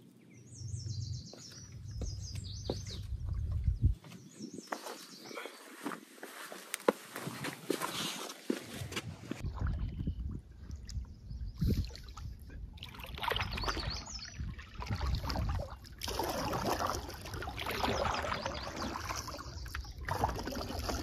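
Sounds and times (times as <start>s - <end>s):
wind rumble on microphone: 0.4s - 4.7s, 8.8s - 18.6s
paddle splashing through water: 12.8s - 21.0s.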